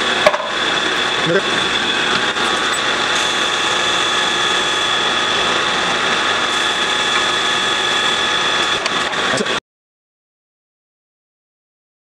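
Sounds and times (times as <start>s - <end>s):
drill press whine: 0.0s - 9.6s.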